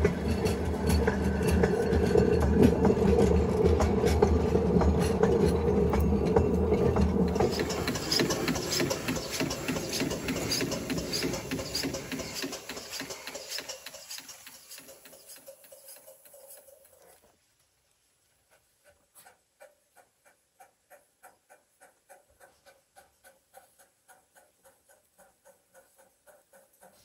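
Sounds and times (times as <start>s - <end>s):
steam locomotive exhaust beats: 0.0s - 17.0s.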